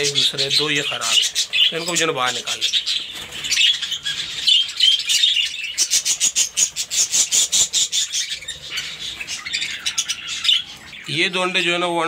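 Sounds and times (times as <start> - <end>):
budgerigars chattering: 0.0 - 12.0.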